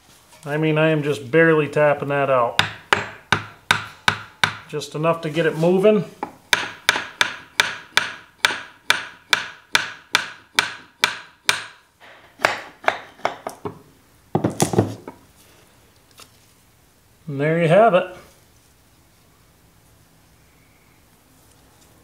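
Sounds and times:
hammer tapping on metal: 2.6s - 4.7s, 6.2s - 11.8s.

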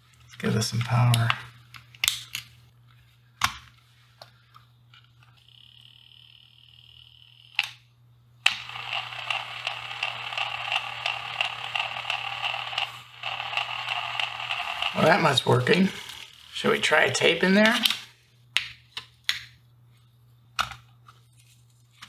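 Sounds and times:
tape recorder running: 5.2s - 7.8s, 8.4s - 17.8s.

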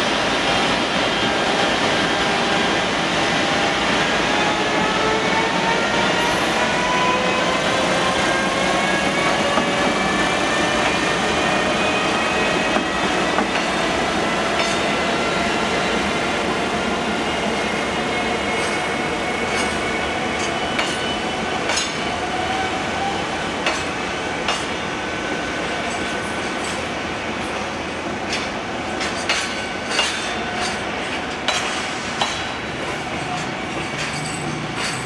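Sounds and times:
wagons rumbling on rails: 25.7s - 35.0s.

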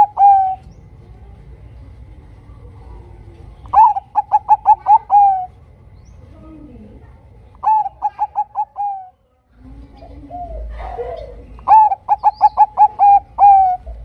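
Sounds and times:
dove cooing: 0.0s - 0.8s, 2.8s - 5.6s, 7.6s - 14.0s.

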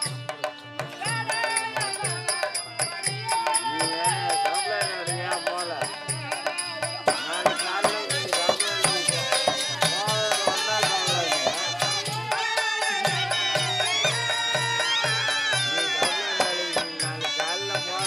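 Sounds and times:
wavering melody line: 4.0s - 18.0s.

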